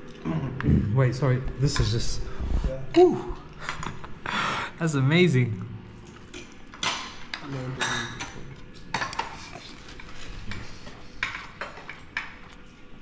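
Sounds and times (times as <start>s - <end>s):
cutlery clinking on plates: 6.4s - 12.5s.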